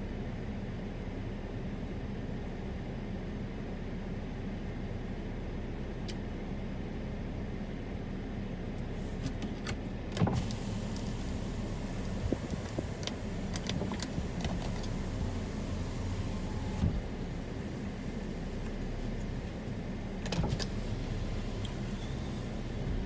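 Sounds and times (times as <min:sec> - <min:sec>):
storm wind rumbling on car: 0:10.2 - 0:23.0.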